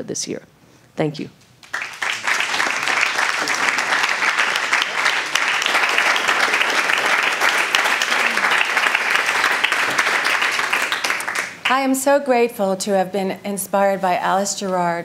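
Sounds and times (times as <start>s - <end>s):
audience applauding: 1.6s - 11.8s.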